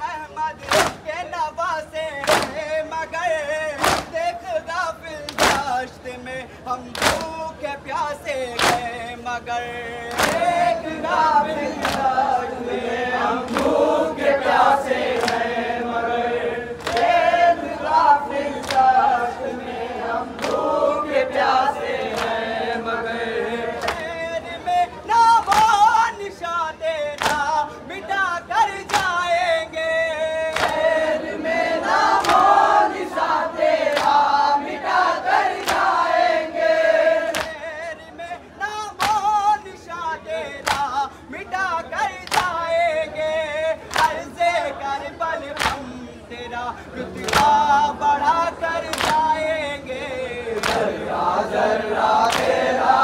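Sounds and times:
men chanting in unison: 0:00.0 - 0:53.0
hands slapping bare chests: 0:00.6 - 0:01.0, 0:02.2 - 0:02.6, 0:03.8 - 0:04.2, 0:05.3 - 0:05.7, 0:06.9 - 0:07.4, 0:08.6 - 0:08.9, 0:10.1 - 0:10.5, 0:15.2 - 0:15.4, 0:16.8 - 0:17.1, 0:18.6 - 0:18.9, 0:23.8 - 0:24.1, 0:25.5 - 0:25.8, 0:27.2 - 0:27.5, 0:30.5 - 0:30.8, 0:37.3 - 0:37.6, 0:39.0 - 0:39.3, 0:40.6 - 0:41.0, 0:42.2 - 0:42.6, 0:43.9 - 0:44.2, 0:45.6 - 0:45.9, 0:47.2 - 0:47.6, 0:48.9 - 0:49.3, 0:50.6 - 0:50.9, 0:52.3 - 0:52.6.

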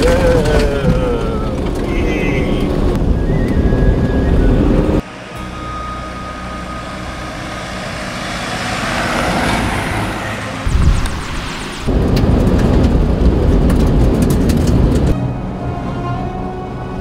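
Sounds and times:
road noise: 0:00.0 - 0:17.0
vehicle engine hum: 0:00.0 - 0:17.0
loud burst: 0:10.3 - 0:13.6.

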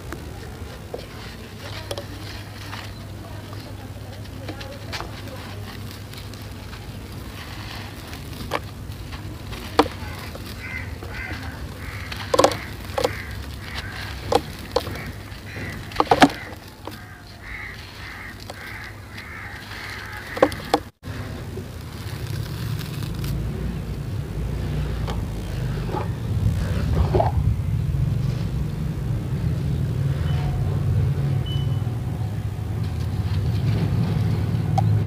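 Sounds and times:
sand-cement ball crumbling by hand: 0:00.0 - 0:27.5
steady low hum: 0:00.0 - 0:30.1
sharp cracks of chunks breaking: 0:04.8 - 0:23.5
bird calls: 0:09.7 - 0:21.4.

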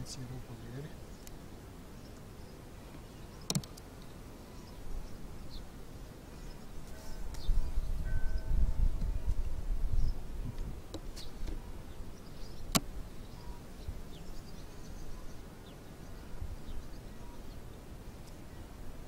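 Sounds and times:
honeybees buzzing: 0:00.0 - 0:19.0
hive tool clicking on wood: 0:03.4 - 0:03.9.

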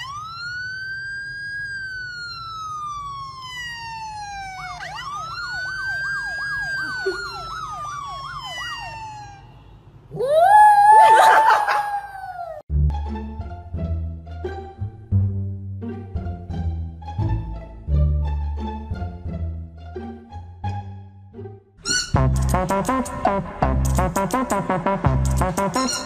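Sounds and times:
siren wailing: 0:00.0 - 0:12.6
rough louder wail: 0:10.1 - 0:12.6.

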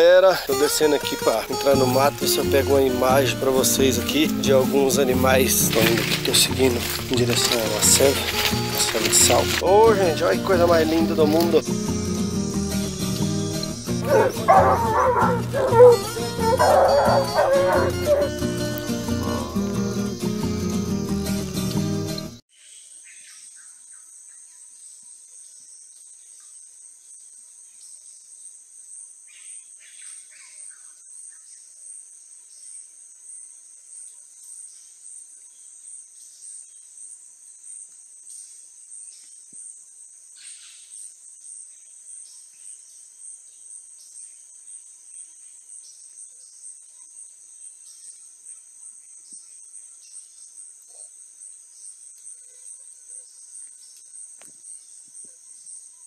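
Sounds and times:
insect chorus buzzing: 0:00.7 - 0:22.2.

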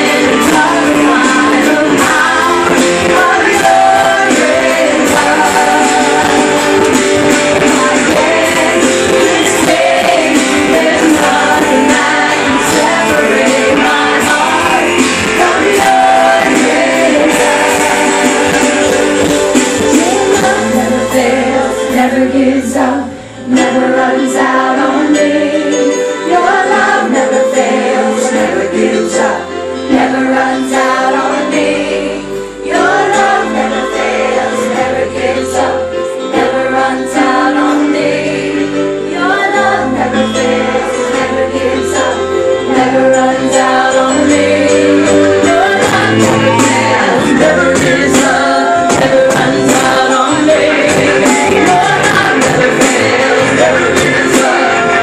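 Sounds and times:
drums with cymbal hits: 0:00.0 - 0:21.3, 0:45.4 - 0:55.0
bass line: 0:00.0 - 0:23.0, 0:42.6 - 0:55.0
keyboard: 0:00.0 - 0:55.0
person singing: 0:39.1 - 0:55.0.

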